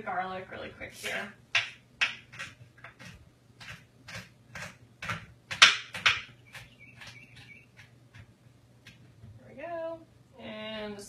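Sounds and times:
knife chopping on wooden board: 1.6 - 8.3.

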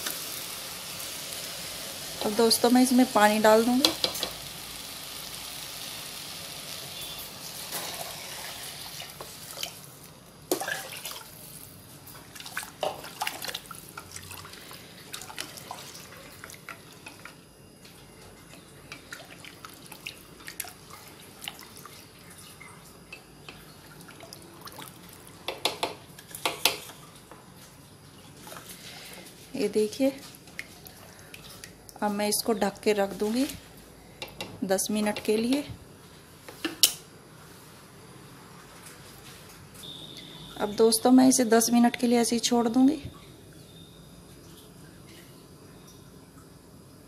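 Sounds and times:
water pouring into a pot: 4.4 - 17.3, 23.8 - 25.4.

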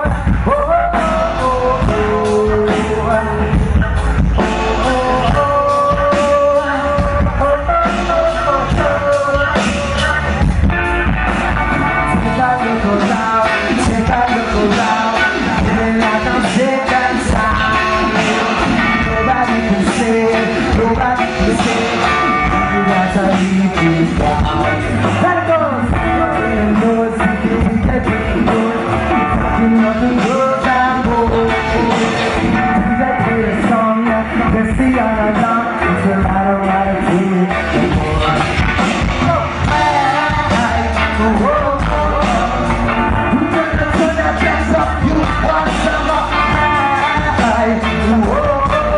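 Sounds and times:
lead singer singing: 0.0 - 48.9
live rock band playing: 0.0 - 48.9.

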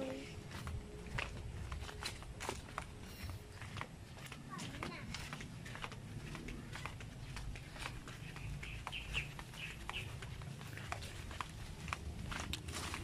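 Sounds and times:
footsteps on grass and dry leaves: 0.0 - 13.0
bird chirping: 8.1 - 10.6.

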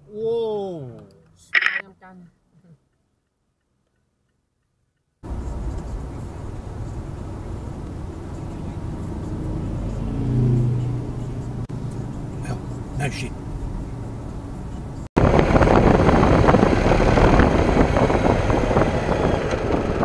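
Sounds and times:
car road and engine noise: 5.2 - 20.0
motorcycle passing: 5.2 - 20.0.

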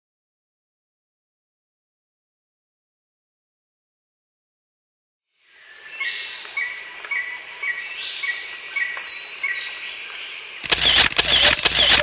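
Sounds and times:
bird chirping: 10.6 - 12.0.

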